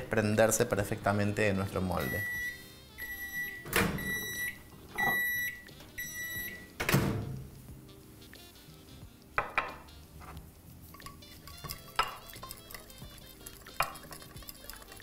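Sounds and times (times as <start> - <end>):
microwave oven beeping: 2.0 - 6.8
glass bowl clicking: 11.0 - 12.2.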